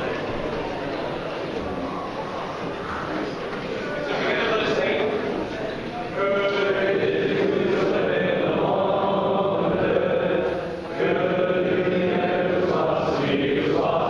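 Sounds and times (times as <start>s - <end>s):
group singing in unison: 6.2s - 14.0s.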